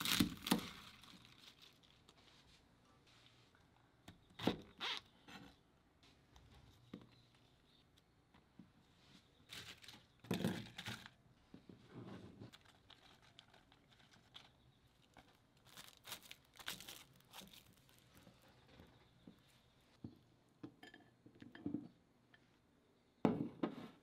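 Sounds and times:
vegetables rustling and crinkling: 0.0s - 3.5s, 9.1s - 11.2s, 12.0s - 19.6s.

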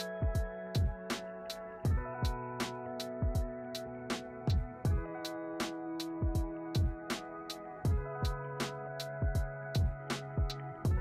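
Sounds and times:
electronic beat music: 0.0s - 11.0s.

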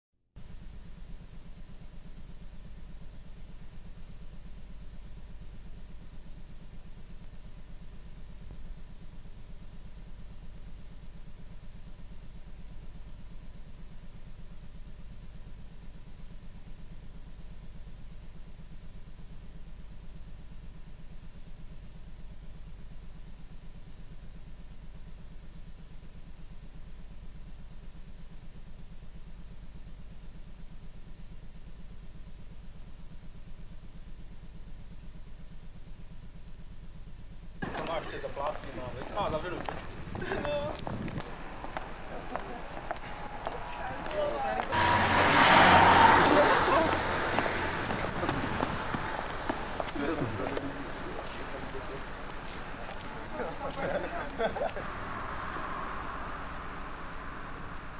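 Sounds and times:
electrical buzzing hum with hiss: 0.4s - 43.0s
thin steady tone: 41.3s - 57.9s.

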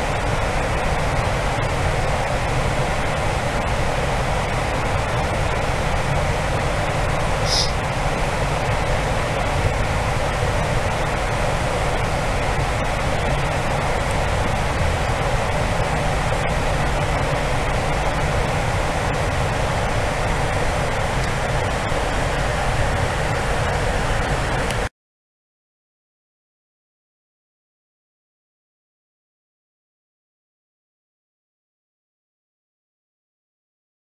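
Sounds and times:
low engine drone: 0.0s - 24.9s
rush of airflow: 0.0s - 24.9s.

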